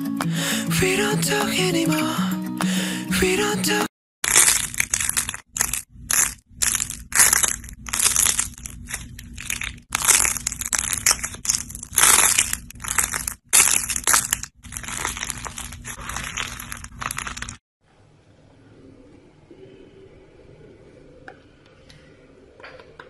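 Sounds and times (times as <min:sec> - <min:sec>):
clay figurines crushed in hand: 0:04.2 - 0:17.6.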